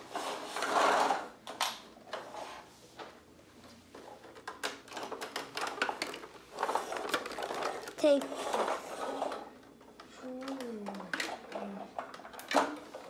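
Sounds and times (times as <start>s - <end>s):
plastic toy clicks and knocks: 4.2s - 13.0s.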